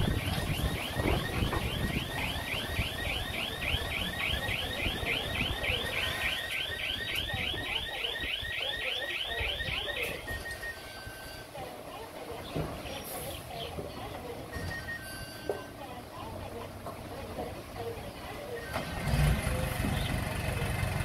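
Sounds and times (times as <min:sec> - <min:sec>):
reverse alarm warbling: 0:00.0 - 0:11.6
diesel engine rumble: 0:00.0 - 0:21.0.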